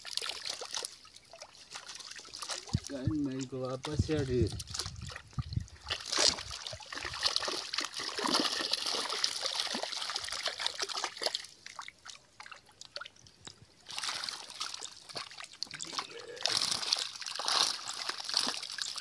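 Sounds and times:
water splashing and trickling: 0.0s - 19.0s
fish thrashing in net: 4.7s - 11.5s, 13.9s - 19.0s.

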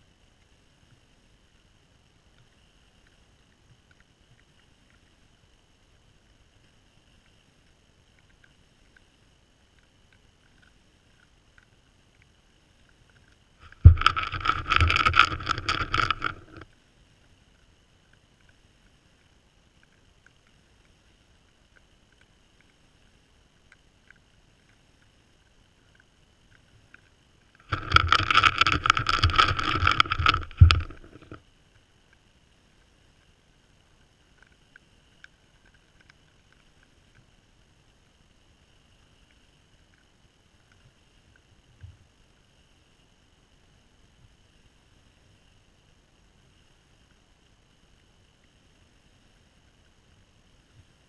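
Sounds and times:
close rubbing and knocking: 13.6s - 16.6s, 27.6s - 31.4s.

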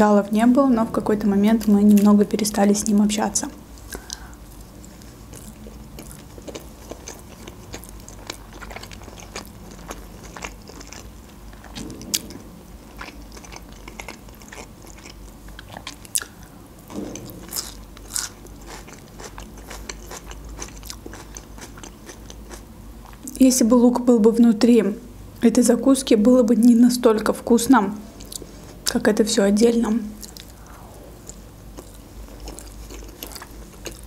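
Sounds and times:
chewing and crunching food: 3.8s - 16.6s, 17.2s - 23.4s, 28.2s - 29.0s, 30.1s - 34.0s.

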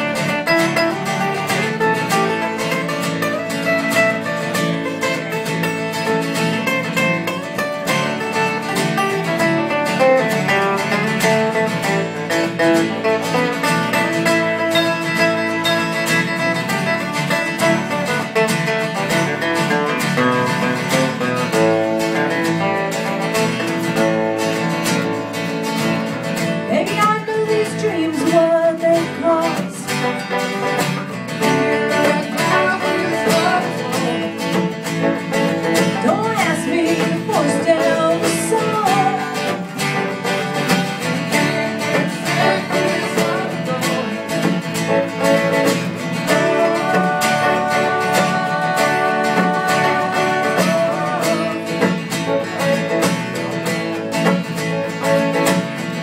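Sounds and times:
acoustic guitars strumming: 0.0s - 56.0s
person singing: 26.7s - 30.1s, 31.4s - 34.7s, 36.0s - 39.9s, 41.3s - 45.5s, 46.1s - 53.3s.

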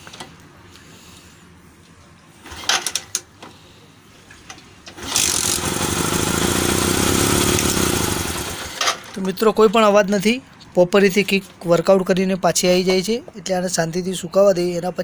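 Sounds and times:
motorcycle engine running: 5.2s - 8.8s.

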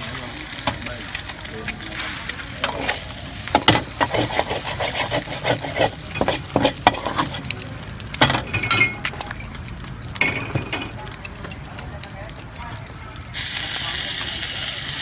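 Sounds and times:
frying oil sizzling: 0.0s - 15.0s
metal spatula scraping griddle: 2.0s - 7.6s.

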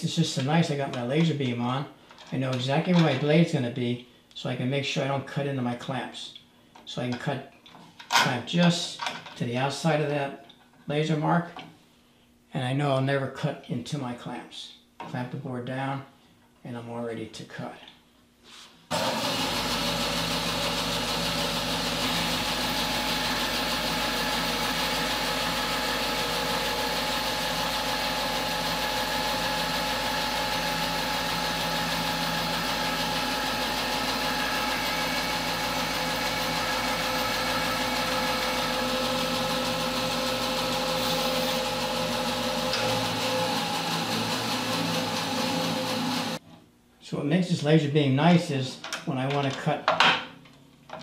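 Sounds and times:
bandsaw cutting wood: 18.9s - 46.4s.

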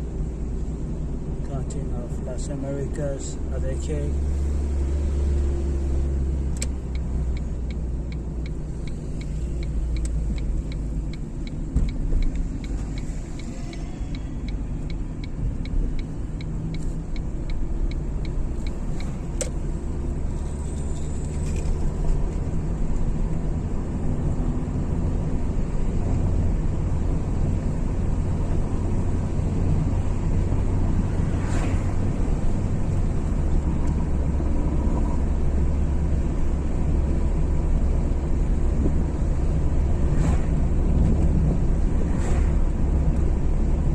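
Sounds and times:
engine and road rumble: 0.0s - 43.9s.

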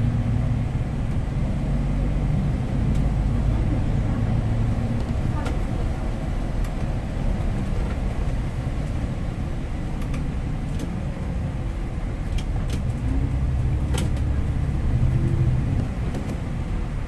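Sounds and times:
bus diesel engine rumbling: 0.0s - 17.0s
clicks and rattles in cab: 9.9s - 11.0s, 12.1s - 14.5s, 15.8s - 16.6s.

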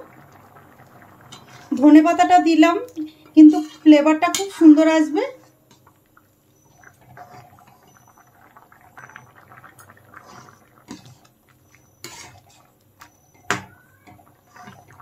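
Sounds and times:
liquid sloshing and bubbling: 0.0s - 2.4s, 5.4s - 15.0s.

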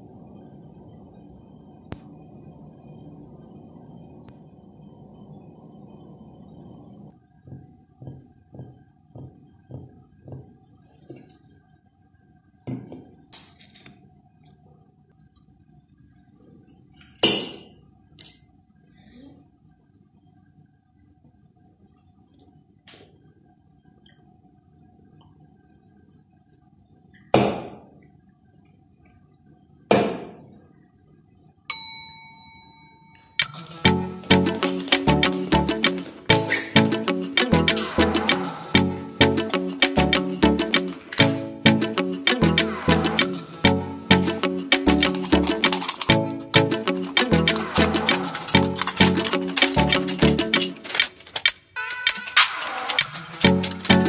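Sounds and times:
bright ringing ding chime: 31.7s - 33.5s
upbeat music: 33.7s - 51.2s, 52.0s - 54.0s.

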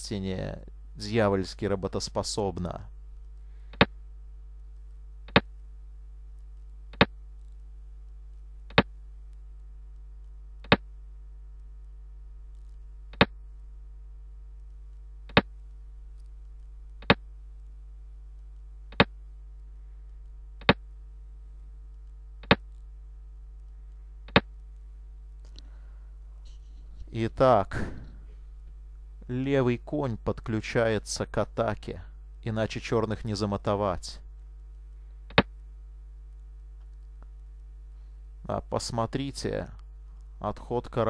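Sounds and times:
low electrical hum: 0.0s - 41.0s
sharp clicks: 22.0s - 22.8s, 23.6s - 24.8s.

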